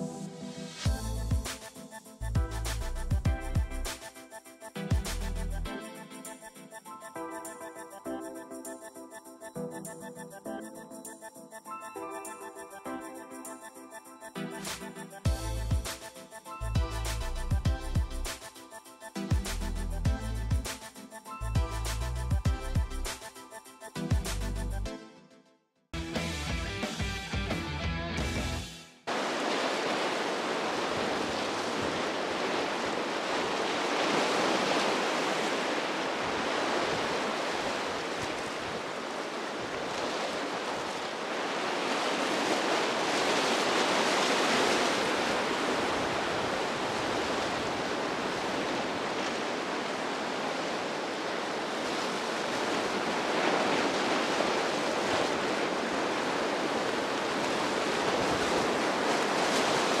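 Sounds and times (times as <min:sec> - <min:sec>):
ocean waves breaking: 0:11.6 - 0:19.8, 0:29.1 - 1:00.0.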